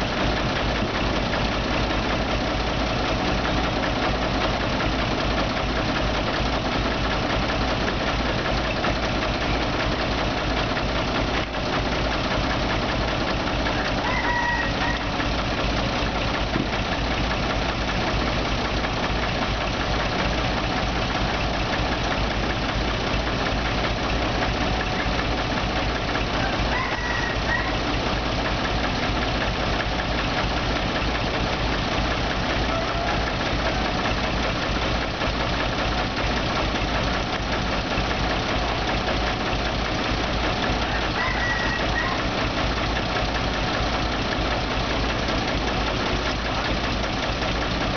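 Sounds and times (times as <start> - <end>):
dump truck idling: 0.0 - 47.9
excavator diesel engine: 0.0 - 47.9
rooster crowing: 13.8 - 15.1, 26.4 - 27.8, 32.7 - 33.2, 40.9 - 42.3.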